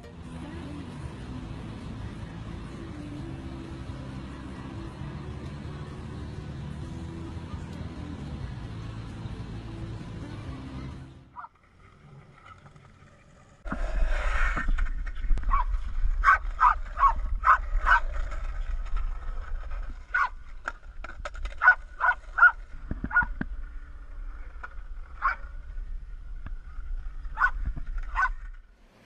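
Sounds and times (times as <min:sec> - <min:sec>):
steady low rumble: 0:13.6 - 0:28.7.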